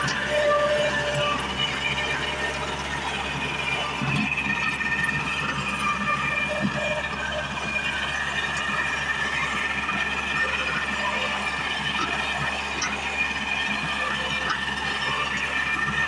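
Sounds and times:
high whine: 0.0 - 16.0
rotary tiller in soil: 0.0 - 16.0
tractor diesel engine running: 0.0 - 16.0.

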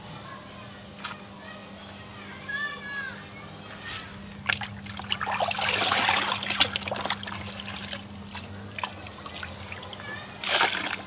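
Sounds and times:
drips and splashes: 4.4 - 11.0.

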